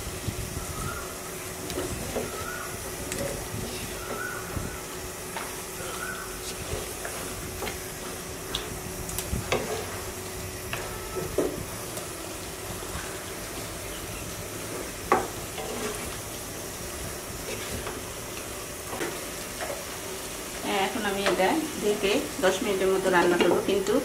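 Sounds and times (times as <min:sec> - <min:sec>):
chicken sizzling in a pan: 0:00.0 - 0:24.0
spatula scraping and knocking pan: 0:09.4 - 0:10.1, 0:14.6 - 0:16.2.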